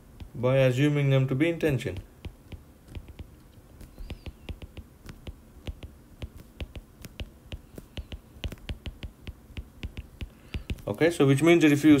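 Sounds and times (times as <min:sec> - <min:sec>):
stylus tapping on glass screen: 0:00.0 - 0:00.4, 0:01.8 - 0:10.9.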